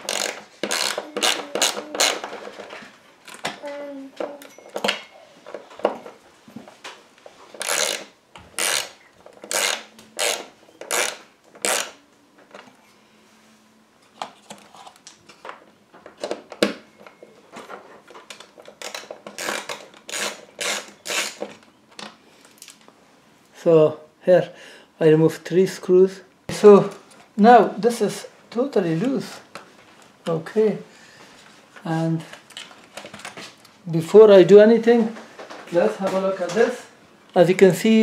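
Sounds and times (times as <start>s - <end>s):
socket driver turning screws: 0.0s - 2.2s, 7.6s - 11.9s.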